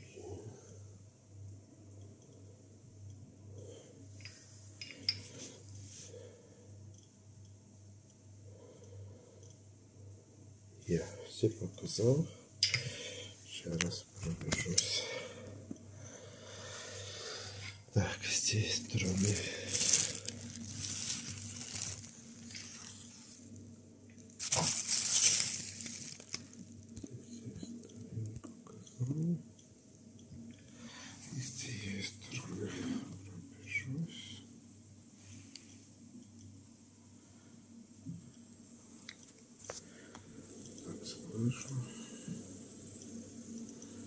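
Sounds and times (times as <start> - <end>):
low steady hum: 0.0 - 44.0
plastic bag rustling: 18.9 - 23.4, 24.4 - 26.8.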